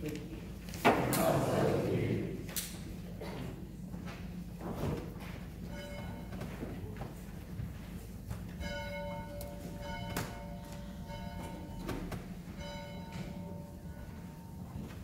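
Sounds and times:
bell ringing: 5.7 - 6.4, 8.6 - 14.7.

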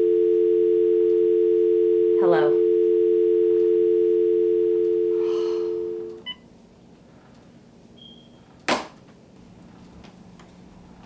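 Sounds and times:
telephone dial tone: 0.0 - 6.2
faint higher beep: 2.8 - 6.4.

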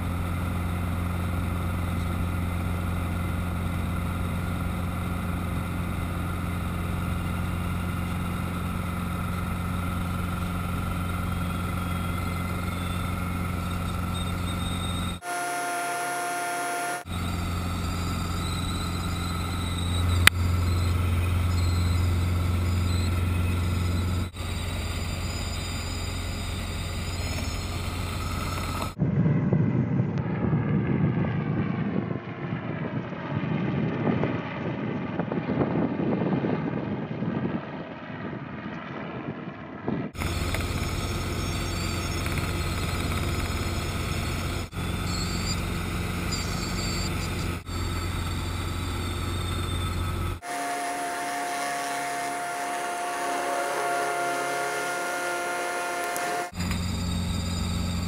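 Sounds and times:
helicopter drone inside cabin: 0.0 - 58.0
helicopter rumble overhead: 0.0 - 58.0
thin whining tones: 1.4 - 29.0, 40.2 - 58.0.

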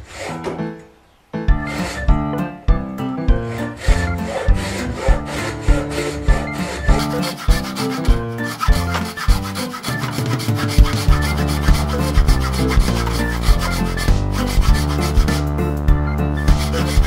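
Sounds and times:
saw rasping through branch: 0.0 - 0.5, 1.6 - 2.1, 3.5 - 15.6, 16.4 - 17.0
background music with beat: 1.5 - 17.0.

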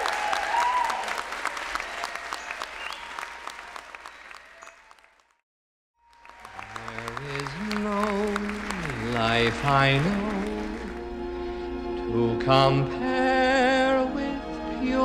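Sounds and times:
audience applauding: 0.0 - 5.4, 6.0 - 11.2
song music: 6.5 - 15.0.

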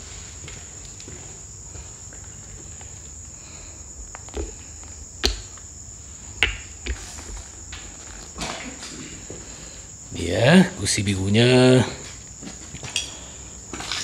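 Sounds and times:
crickets chirring: 0.0 - 14.0
footsteps on rubble: 4.0 - 5.7, 6.4 - 9.5, 12.0 - 13.0.

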